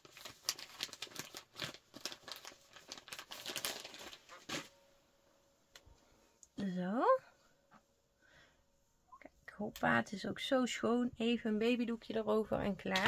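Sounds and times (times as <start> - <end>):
wipe packet crinkling and rustling: 0.0 - 4.8.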